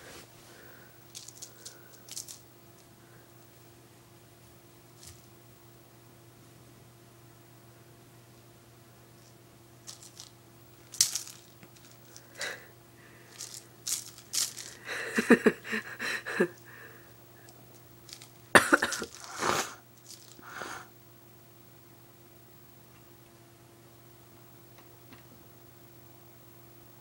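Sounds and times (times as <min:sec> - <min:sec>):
toy rattling against wooden door: 0:09.9 - 0:12.2.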